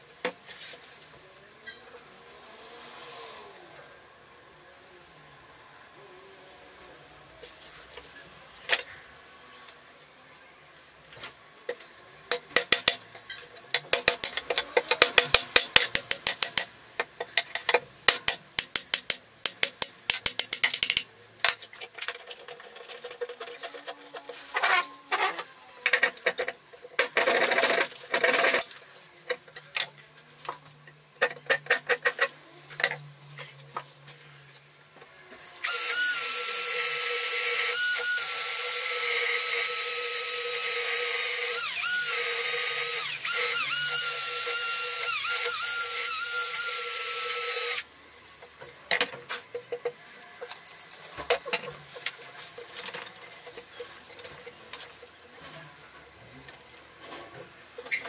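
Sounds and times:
electric drill whining: 0:35.6 - 0:47.9.

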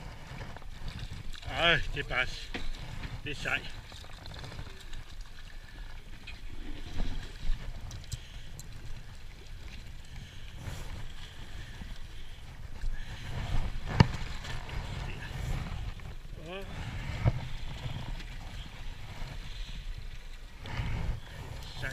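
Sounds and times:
boat engine rumble: 0:00.0 - 0:21.9.

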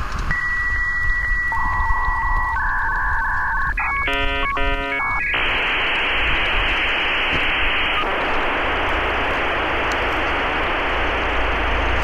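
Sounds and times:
static hiss: 0:00.0 - 0:12.0
electronic beep tones: 0:00.3 - 0:06.1.

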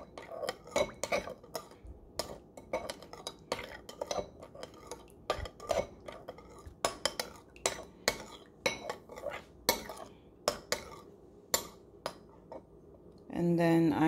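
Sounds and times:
metal spoon clinking against bowl: 0:00.0 - 0:11.0.

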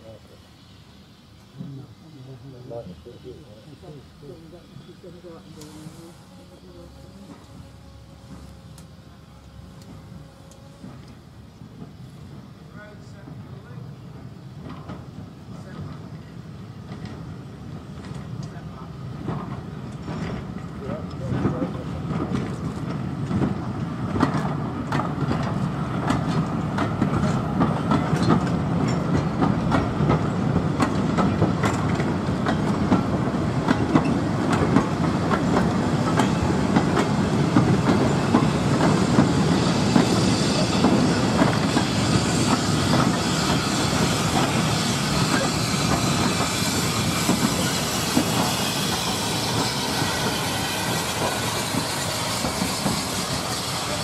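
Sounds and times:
steam hiss: 0:00.0 - 0:54.0
train wheels clicking over rail joints: 0:14.5 - 0:54.0.

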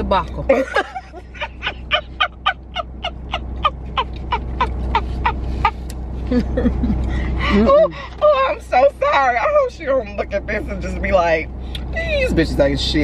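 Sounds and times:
woman laughing hard: 0:00.5 - 0:08.0.

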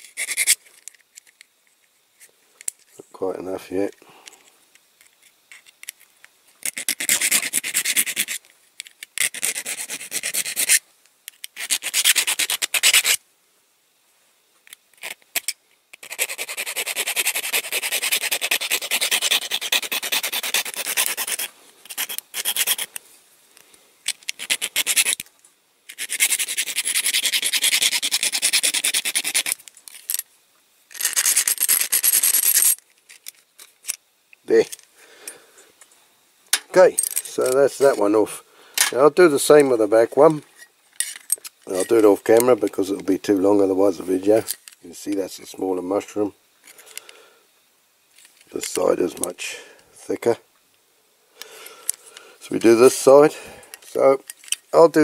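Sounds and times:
hand file rasping on metal: 0:16.0 - 0:22.9.

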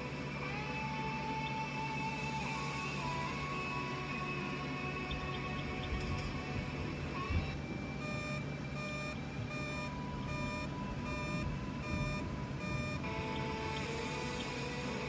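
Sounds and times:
background music: 0:00.0 - 0:15.0
repeating electronic beep: 0:08.0 - 0:15.0.

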